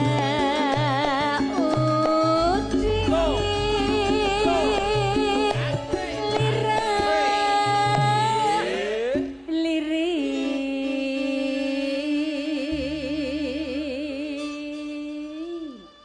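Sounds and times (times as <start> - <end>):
woman singing into a microphone: 0.0 - 8.6, 9.4 - 16.0
musical accompaniment: 0.0 - 16.0.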